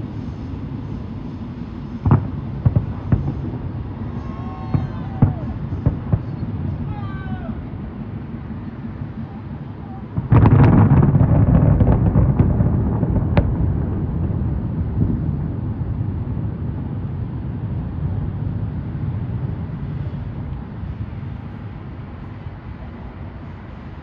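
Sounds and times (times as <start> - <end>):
fireworks bursting: 0.0 - 15.7
fireworks crackling: 0.0 - 24.0
low rolling echo: 0.0 - 24.0.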